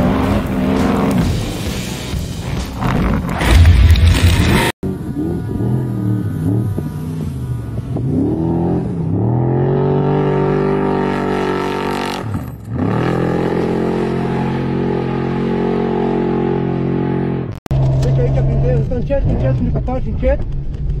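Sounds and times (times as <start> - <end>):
truck engine revving hard: 2.5 - 18.4.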